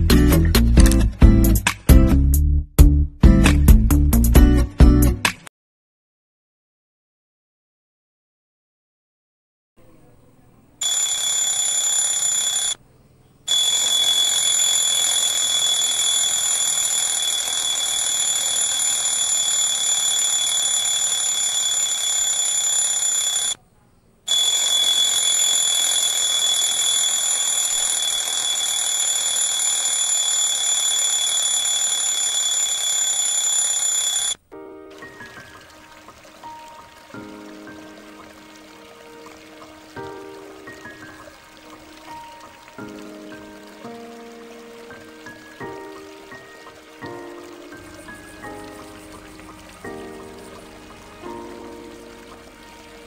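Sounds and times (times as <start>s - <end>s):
electronic alarm ringing: 10.8s - 12.8s, 13.5s - 23.6s, 24.3s - 34.4s.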